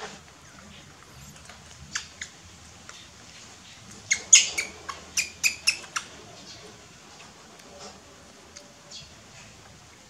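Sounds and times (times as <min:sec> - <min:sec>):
baby monkey squeaking: 0:04.1 - 0:06.1.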